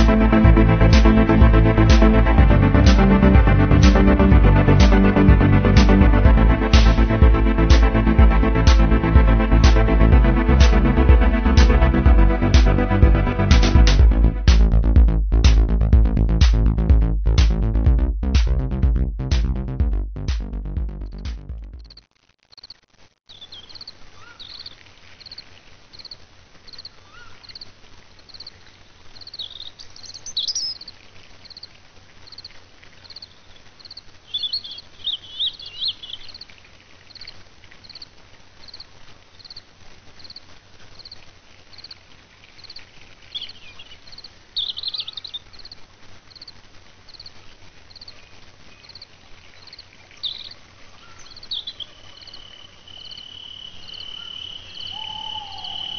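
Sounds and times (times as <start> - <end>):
bird chirps: 23.3 - 25.4, 29.2 - 30.9, 34.3 - 36.4, 43.3 - 45.7, 49.6 - 55.9
cricket chirping: 28.3 - 42.0, 42.6 - 48.2, 48.8 - 55.9.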